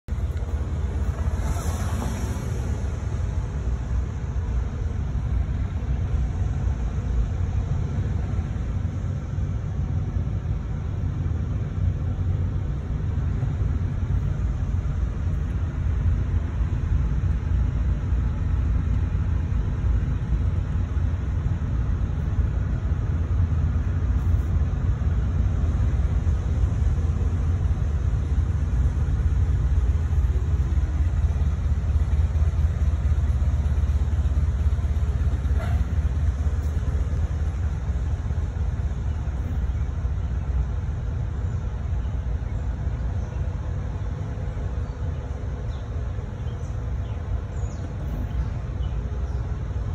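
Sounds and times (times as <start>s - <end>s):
car engine: 0.0s - 49.9s
road noise: 0.0s - 49.9s.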